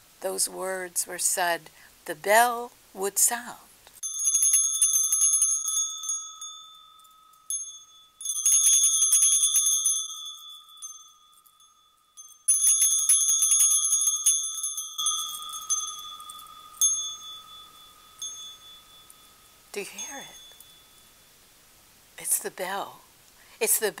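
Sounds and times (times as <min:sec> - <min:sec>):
hand bells jangling and ringing: 0:04.0 - 0:21.4.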